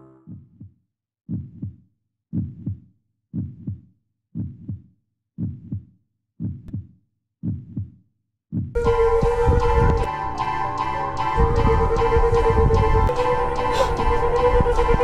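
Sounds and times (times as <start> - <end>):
heartbeat thumps: 0.2 - 10.1.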